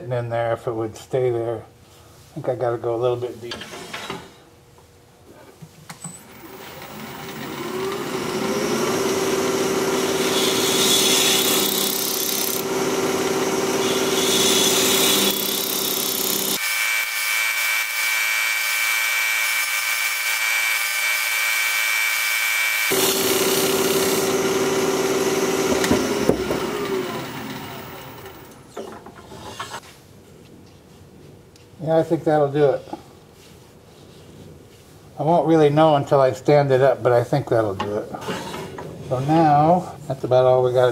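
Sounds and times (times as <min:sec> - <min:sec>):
wood lathe humming: 0:06.3 - 0:28.7.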